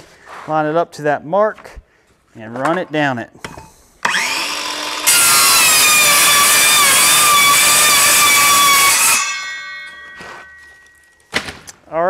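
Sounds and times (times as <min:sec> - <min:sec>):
circular saw cutting vinyl panels: 0:04.0 - 0:10.6.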